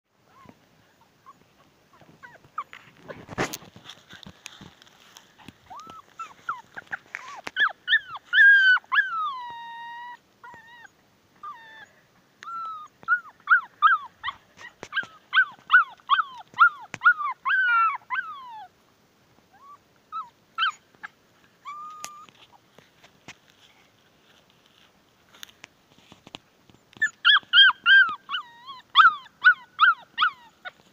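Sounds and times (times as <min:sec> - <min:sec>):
puppy whining and yelping: 0:00.3 - 0:03.3, 0:05.4 - 0:18.7, 0:19.5 - 0:22.6, 0:26.8 - 0:30.9.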